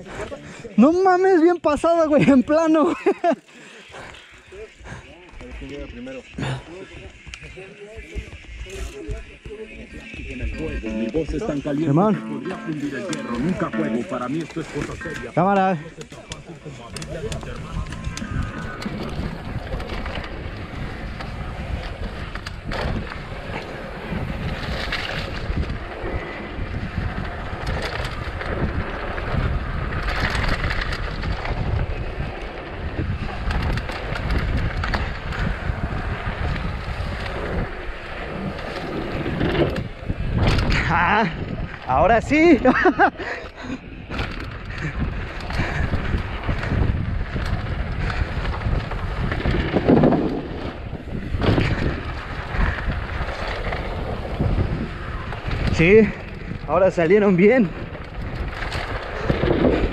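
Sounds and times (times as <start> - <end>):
bike tyres rumbling: 2.4 - 59.9
wind buffeting microphone: 3.8 - 59.9
bike clattering over bumps: 14.2 - 59.9
bike knocking over rough ground: 44.1 - 56.6, 57.8 - 59.9.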